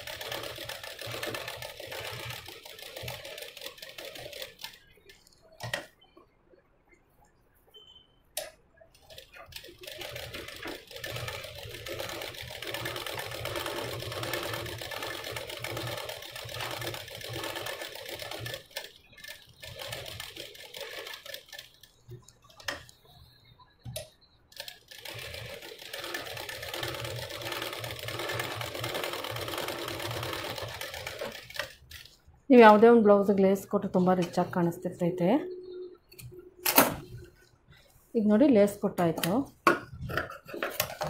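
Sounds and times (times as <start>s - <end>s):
sewing machine stitching: 0.0s - 4.8s, 9.0s - 21.9s, 24.6s - 31.9s.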